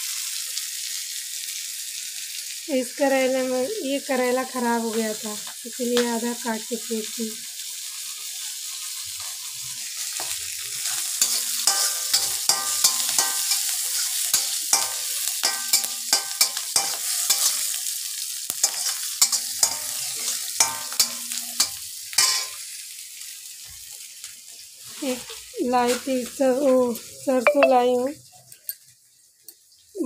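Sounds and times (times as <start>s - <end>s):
spices sizzling in hot oil: 0.0s - 30.0s
spatula clicking and scraping pan: 10.1s - 17.9s, 18.5s - 22.6s.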